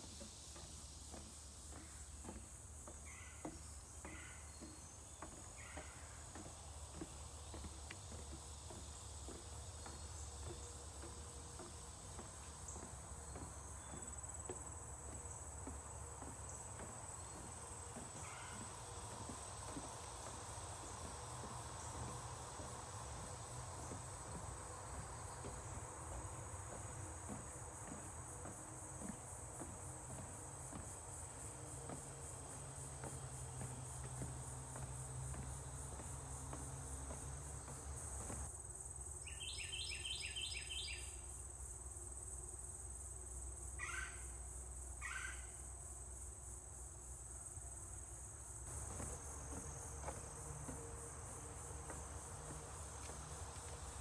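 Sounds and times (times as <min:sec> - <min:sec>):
footsteps on wooden boardwalk: 0:00.0 - 0:41.0, 0:47.8 - 0:54.0
insects chorus: 0:00.0 - 0:54.0.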